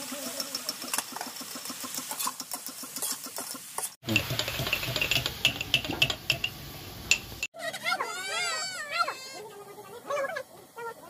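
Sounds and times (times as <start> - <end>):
vegetables frying in a wok: 0.0 - 7.5
scraping and clinking in wok: 2.0 - 7.5.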